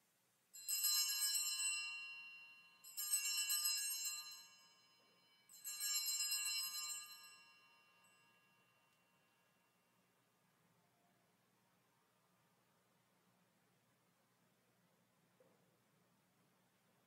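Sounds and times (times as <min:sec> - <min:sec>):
altar bells jingling: 0:00.6 - 0:08.7.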